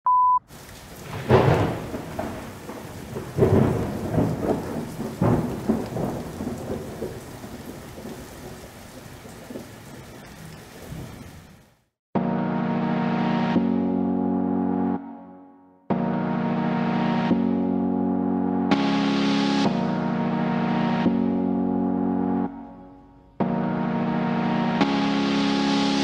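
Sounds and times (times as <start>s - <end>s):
steady rain: 0.5s - 11.9s
thunder rumbling and clapping: 0.6s - 10.3s.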